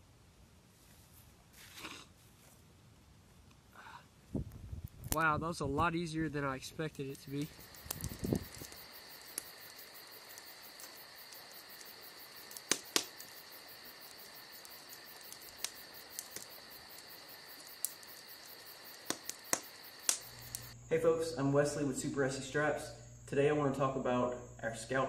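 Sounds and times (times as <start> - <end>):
campfire crackling and popping: 4.8 - 20.8
insects chirring: 5.2 - 25.0.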